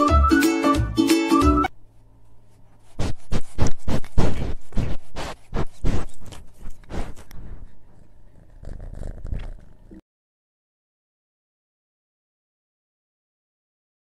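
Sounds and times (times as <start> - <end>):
cat sniffing: 2.2 - 10.0.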